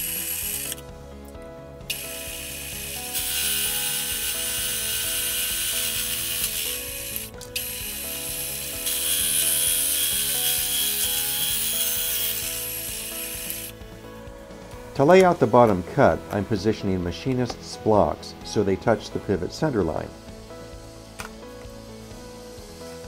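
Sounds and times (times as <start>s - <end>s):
hole saw cutting aluminum: 0.0s - 0.8s, 1.9s - 13.8s.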